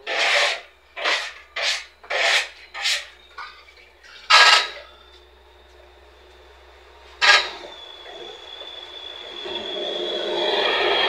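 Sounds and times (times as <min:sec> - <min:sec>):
faint high whine: 0:00.0 - 0:11.0
short scraping rubs: 0:00.1 - 0:03.1.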